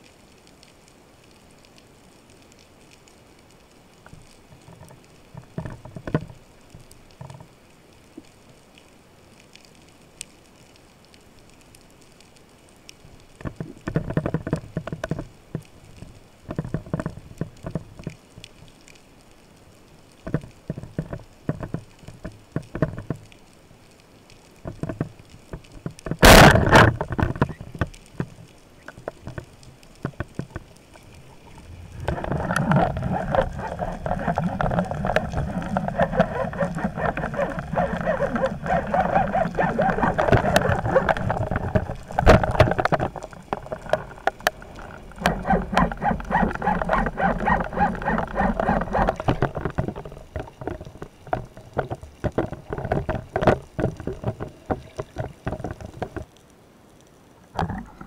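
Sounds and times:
underwater crackly clicking and rustling: 0:00.0 - 0:58.0
water rushing past camera: 0:31.0 - 0:56.2, 0:57.4 - 0:58.0.

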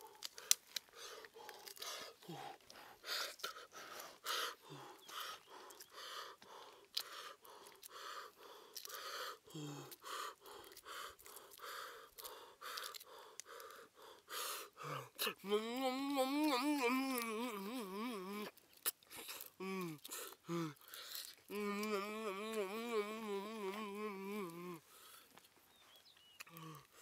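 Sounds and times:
man blowing breathy puffs: 0:00.0 - 0:14.8
man humming low: 0:02.2 - 0:02.6, 0:09.5 - 0:10.0, 0:14.8 - 0:18.6, 0:19.4 - 0:20.8, 0:21.5 - 0:25.0, 0:26.5 - 0:27.0.

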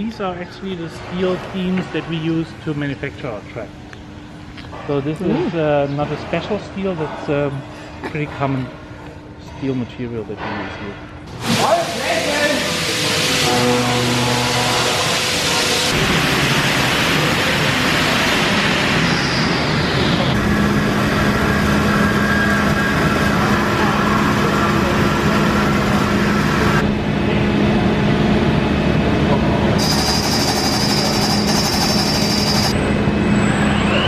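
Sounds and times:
machinery noise: 0:11.4 - 0:34.0
high steady whine: 0:12.0 - 0:34.0.

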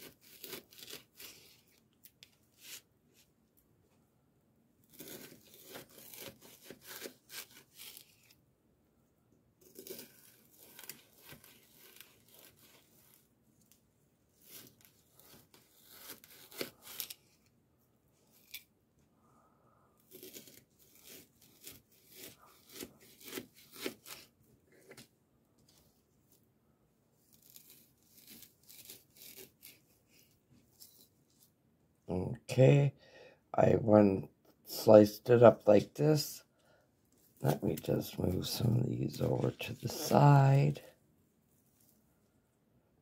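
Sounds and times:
knife slicing frozen chicken: 0:00.0 - 0:01.6, 0:04.9 - 0:08.3, 0:09.6 - 0:13.1, 0:14.4 - 0:17.2, 0:20.0 - 0:25.0.

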